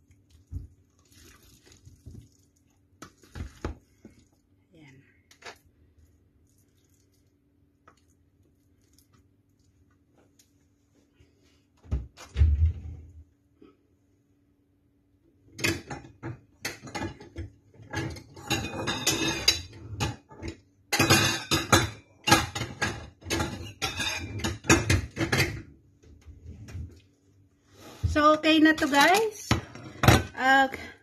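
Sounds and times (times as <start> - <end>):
ceramic dishes clattering: 18.0 - 20.2, 20.9 - 25.6.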